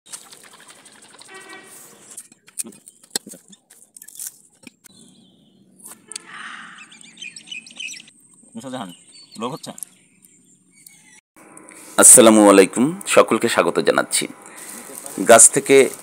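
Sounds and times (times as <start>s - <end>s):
birds chirping faintly: 0.5s - 11.8s.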